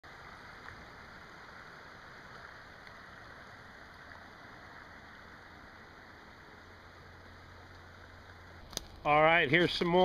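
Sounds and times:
creek babbling: 0.0s - 10.0s
faint ticks: 2.3s - 3.0s.

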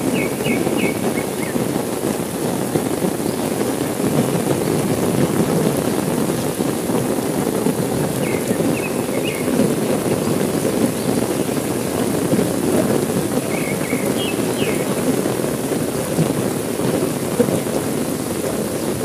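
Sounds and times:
heavy rain hissing: 0.0s - 19.0s.

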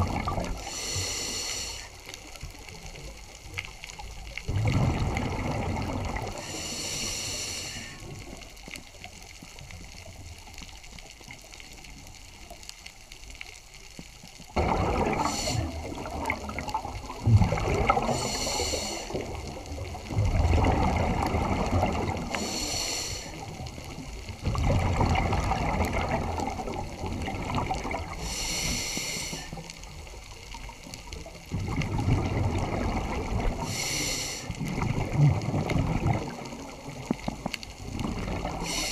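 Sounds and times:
gurgling exhaled bubbles: 0.0s - 1.2s, 2.2s - 7.0s, 14.5s - 38.9s
hissing regulator breaths: 0.6s - 2.0s, 6.4s - 8.1s, 15.1s - 15.9s, 18.0s - 19.2s, 22.3s - 23.5s, 28.1s - 29.7s, 33.6s - 34.6s, 38.6s - 38.9s.

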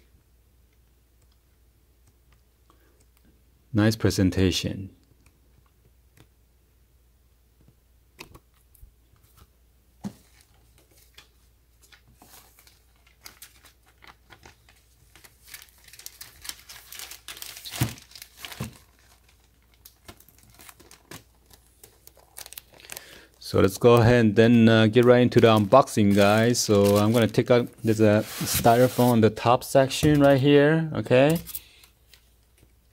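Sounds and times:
paper and plastic bag rustling: 11.9s - 23.1s, 24.9s - 30.5s.

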